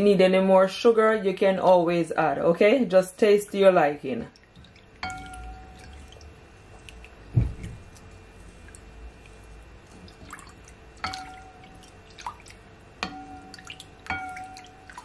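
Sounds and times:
liquid sloshing and dripping: 0:04.2 - 0:15.0
spoon stirring liquid: 0:04.3 - 0:15.0
spoon tapping glass bowl: 0:05.0 - 0:05.8, 0:11.0 - 0:11.7, 0:13.0 - 0:15.0
dull knock: 0:07.3 - 0:07.8.

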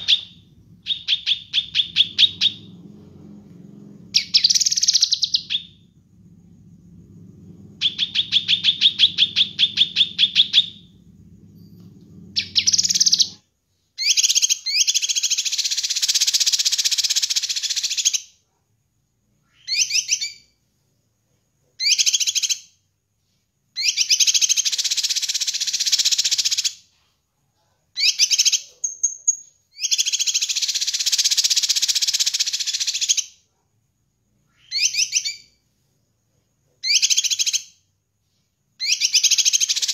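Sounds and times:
bird singing loudly: 0:00.0 - 0:02.8, 0:04.1 - 0:05.8, 0:07.8 - 0:10.9, 0:12.4 - 0:13.4.

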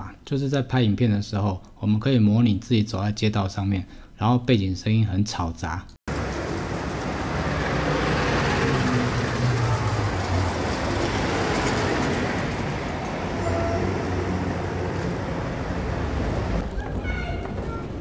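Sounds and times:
road traffic passing: 0:06.1 - 0:18.0.

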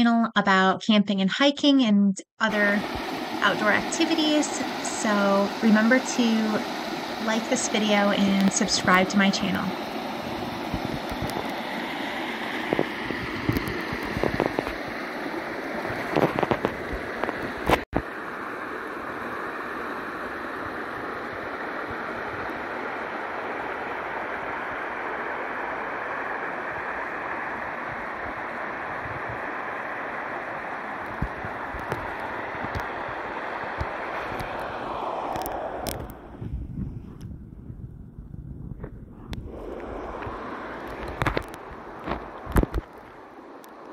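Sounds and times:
creek rushing over rocks: 0:09.7 - 0:19.4.

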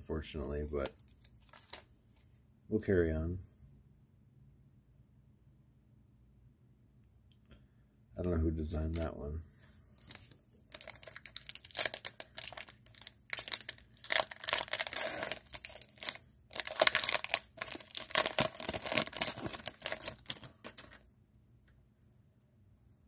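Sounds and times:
foil wrapper tearing and crinkling: 0:00.8 - 0:01.8, 0:10.0 - 0:21.0.

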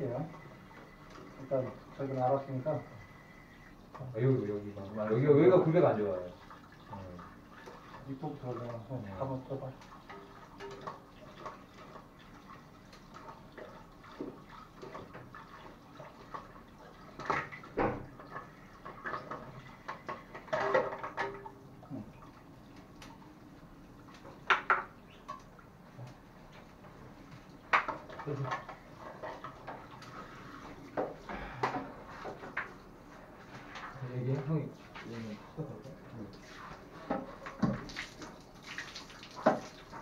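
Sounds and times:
water sloshing and dripping: 0:00.0 - 0:40.0.

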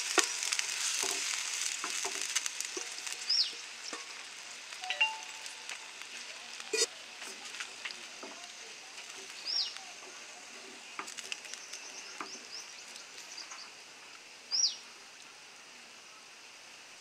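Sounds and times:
wooden spatula scraping a pan: 0:00.0 - 0:04.3
faint sizzling hiss: 0:00.0 - 0:17.0.

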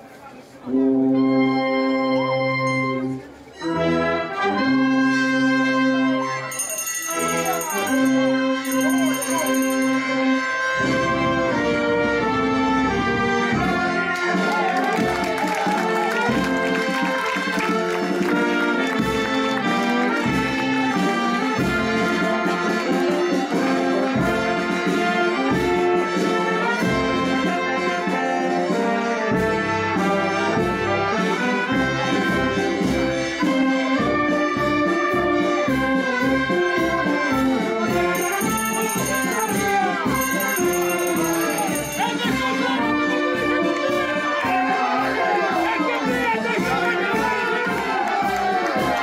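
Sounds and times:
brass band playing a march: 0:00.6 - 0:49.0.

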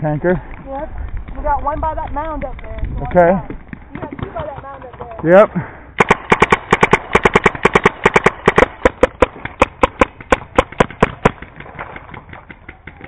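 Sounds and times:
faint paintball shots: 0:01.2 - 0:13.0
paintball marker firing rapidly: 0:03.7 - 0:05.3, 0:06.0 - 0:13.0.

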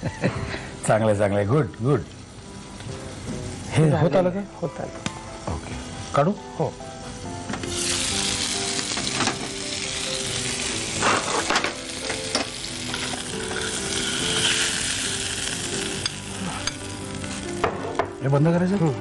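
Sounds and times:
fish sizzling in oil: 0:00.0 - 0:19.0
utensils knocking against pan: 0:08.9 - 0:09.6.

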